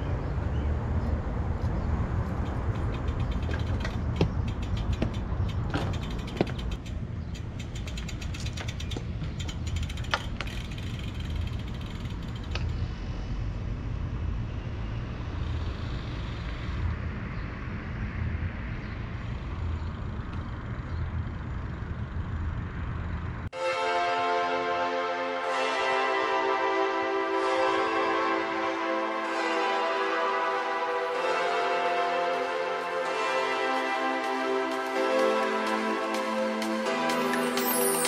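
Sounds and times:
wind rumble on microphone: 0:00.0 - 0:23.4
road noise: 0:00.0 - 0:38.0
bicycle freewheel ticking: 0:02.4 - 0:12.9.

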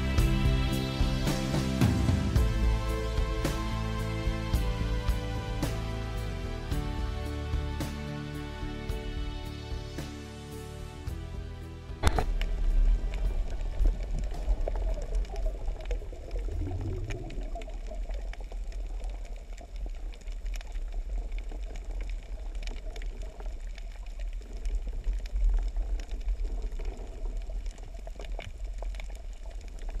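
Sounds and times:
underwater water rumble: 0:11.9 - 0:30.0
sharp clicks and crackles: 0:12.0 - 0:30.0.

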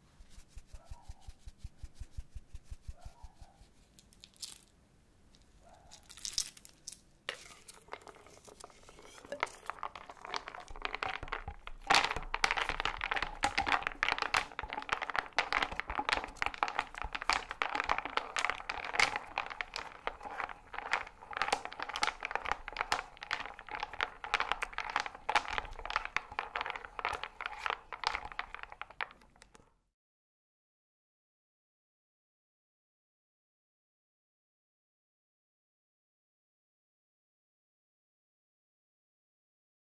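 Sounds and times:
liquid swishing: 0:00.0 - 0:03.8, 0:07.3 - 0:28.9.

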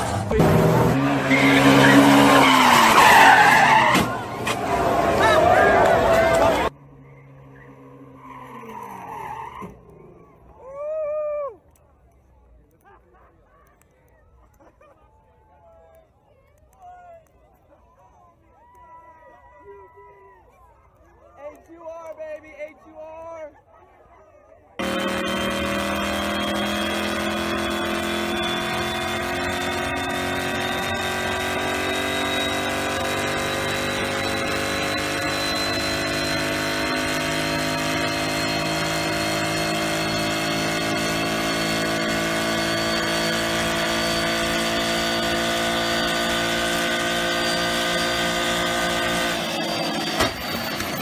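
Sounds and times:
car engine revving under load: 0:00.0 - 0:09.8, 0:24.8 - 0:50.3
thin high whine: 0:24.8 - 0:51.0.

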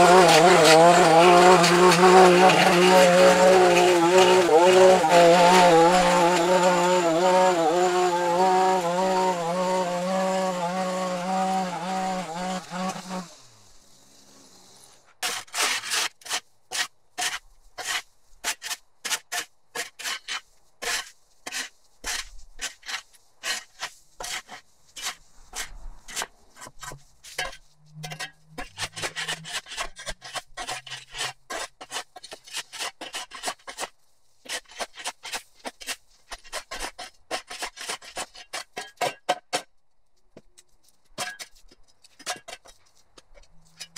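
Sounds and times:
lawn trimmer engine running: 0:00.0 - 0:13.3
shovel scraping concrete: 0:00.0 - 0:13.3, 0:15.2 - 0:39.7, 0:41.1 - 0:43.9.

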